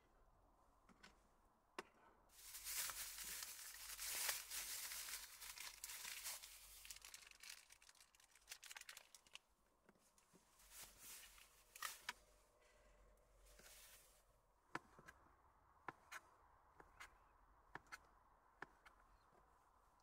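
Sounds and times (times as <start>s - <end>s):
plastic packaging tearing and crinkling: 2.4s - 9.4s.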